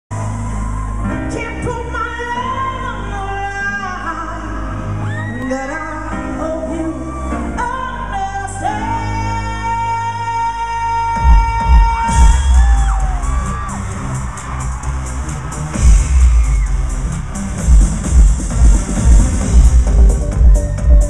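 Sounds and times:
band with keyboards and bass: 0.1s - 21.0s
woman singing live: 1.0s - 12.8s.

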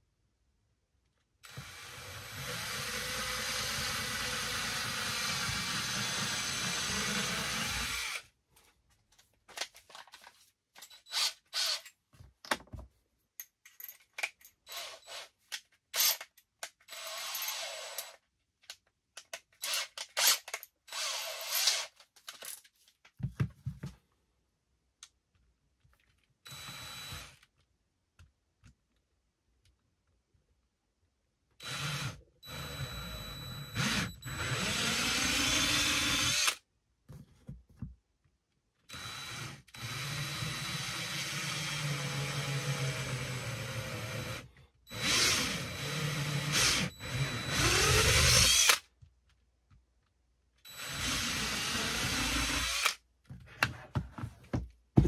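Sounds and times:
cordless drill running: 1.5s - 8.2s, 16.9s - 18.1s, 20.9s - 21.8s, 26.5s - 27.4s, 31.6s - 36.6s, 38.9s - 48.8s, 50.7s - 53.0s.

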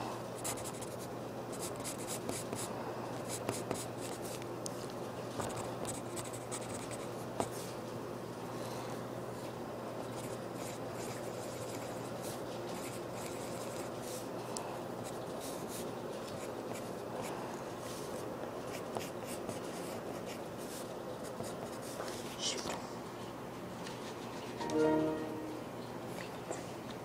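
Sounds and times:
steady background hiss: 0.0s - 27.0s
pen scratching on paper: 0.4s - 1.0s, 1.6s - 2.7s, 5.6s - 7.6s, 10.2s - 13.9s.

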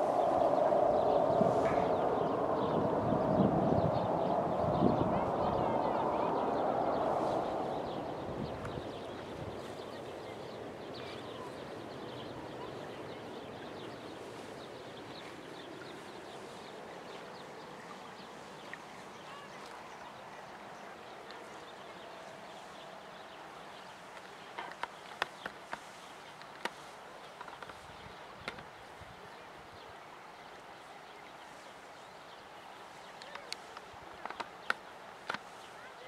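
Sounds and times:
soft rushing noise: 0.0s - 28.2s
small birds chirping: 0.0s - 36.0s.

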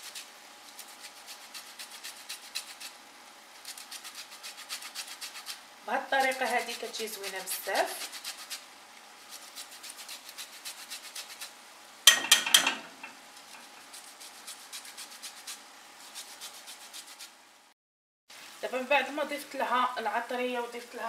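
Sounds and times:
grater scraping lemon peel: 0.0s - 3.0s, 3.6s - 11.5s, 13.5s - 17.4s.

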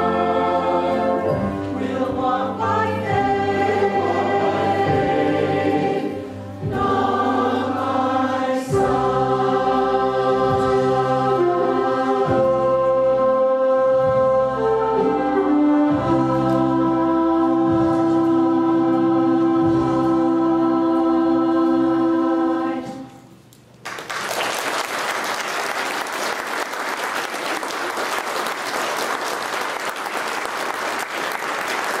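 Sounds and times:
choir and band sustained chord: 0.0s - 23.4s
audience applauding: 23.8s - 32.0s.

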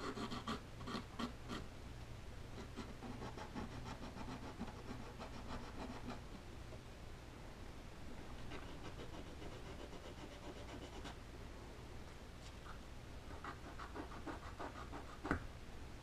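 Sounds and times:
hand-sanding wood: 8.4s - 11.1s, 13.3s - 15.4s.

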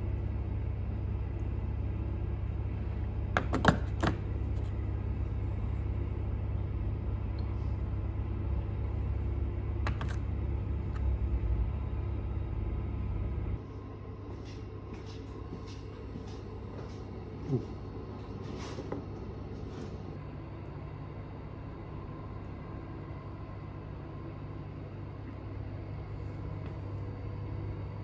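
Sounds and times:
steady low rumble: 4.2s - 20.3s.

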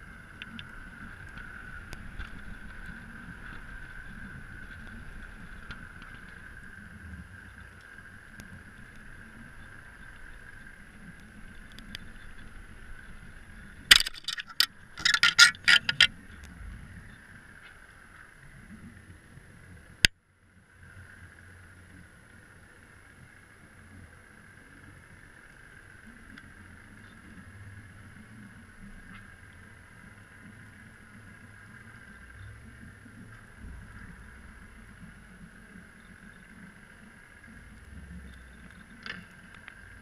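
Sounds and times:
low underwater rumble: 0.0s - 20.0s, 25.8s - 40.0s
steady underwater whine: 0.0s - 40.0s
camera knocking on rocks: 13.9s - 16.1s.

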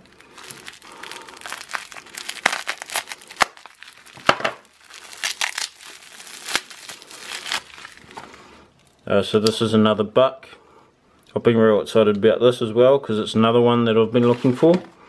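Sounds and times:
bubble wrap crinkling: 0.0s - 9.0s.

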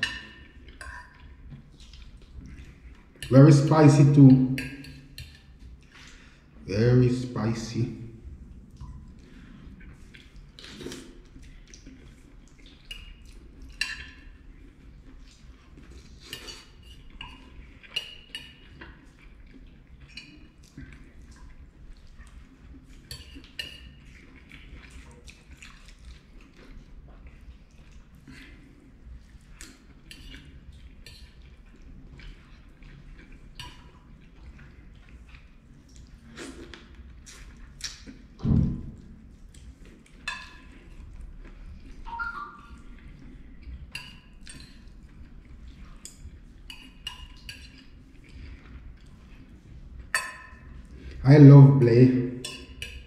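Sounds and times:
wet eating sounds: 0.0s - 53.0s
fork clinking on ceramic plate: 52.4s - 53.0s.

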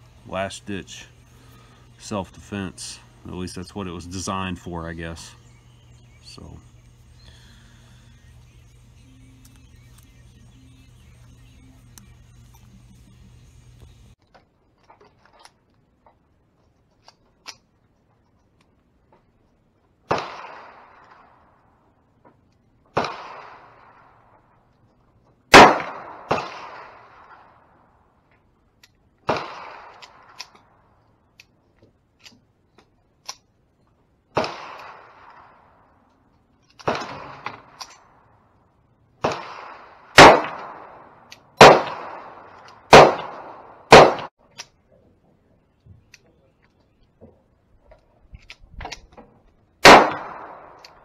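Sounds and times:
pistol shots echoing: 20.1s - 21.4s, 22.9s - 24.2s, 25.5s - 27.6s, 29.3s - 30.6s, 34.3s - 35.7s, 36.8s - 37.9s, 39.2s - 44.3s, 49.8s - 51.0s.

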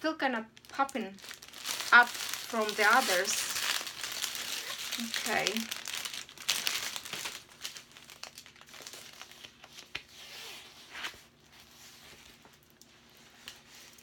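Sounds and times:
sharp packaging crackles: 0.5s - 10.1s
packaging crinkling and rustling: 0.5s - 14.0s.

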